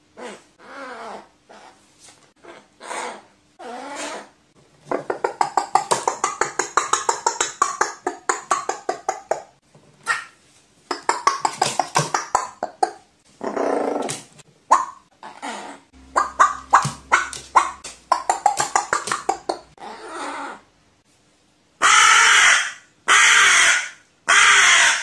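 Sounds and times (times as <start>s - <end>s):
crow clucking rattles: 4.9s - 9.4s, 10.1s - 12.9s, 16.1s - 19.8s
crow rough call: 21.8s - 25.0s.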